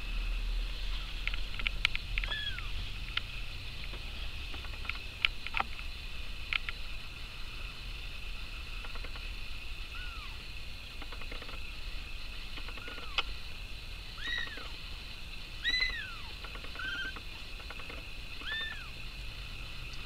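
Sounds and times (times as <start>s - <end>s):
light ticks and clicks: 1.2s - 6.8s.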